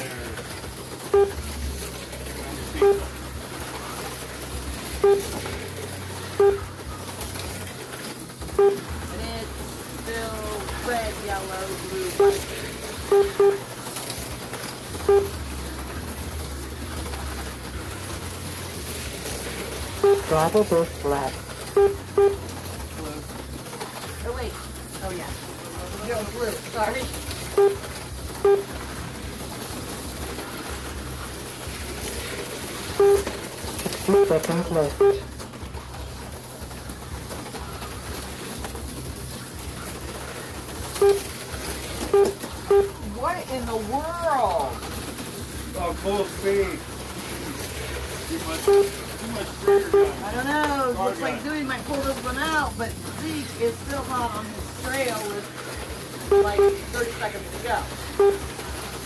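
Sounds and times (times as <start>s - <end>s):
slot cars whirring: 0.0s - 59.0s
short electronic beeps: 1.0s - 1.5s, 2.7s - 3.1s, 5.0s - 5.4s, 6.3s - 6.7s, 8.6s - 9.0s, 12.1s - 13.7s, 15.0s - 15.4s, 20.0s - 21.0s, 21.6s - 22.5s, 27.5s - 28.8s, 32.9s - 33.3s, 33.9s - 35.3s, 41.0s - 41.3s, 42.0s - 43.0s, 48.5s - 50.4s, 56.3s - 57.0s, 58.1s - 58.6s.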